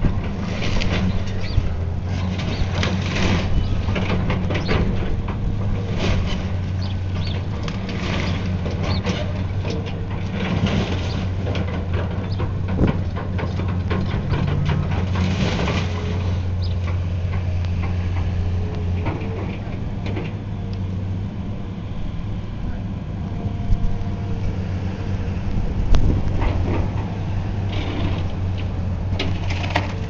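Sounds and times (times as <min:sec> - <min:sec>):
debris crunching and clattering: 0:00.0 - 0:18.2, 0:27.7 - 0:30.0
demolition machine engine droning: 0:00.0 - 0:30.0
falling debris crashes: 0:05.6 - 0:16.6.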